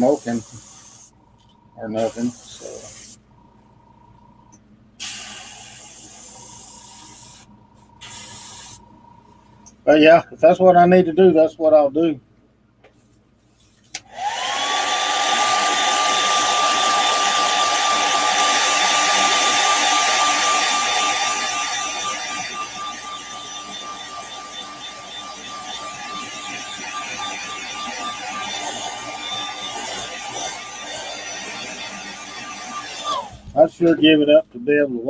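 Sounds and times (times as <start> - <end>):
hair dryer motor whine: 14.0 - 33.6.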